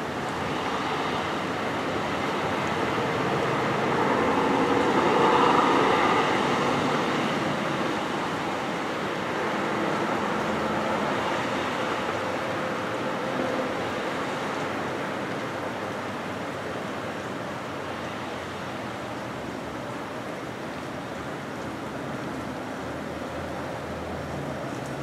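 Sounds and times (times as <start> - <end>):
car passing: 0.0 - 12.5.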